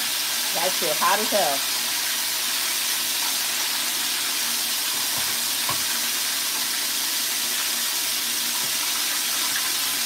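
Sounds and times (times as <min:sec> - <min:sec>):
chicken deep-frying in oil: 0:00.0 - 0:10.0.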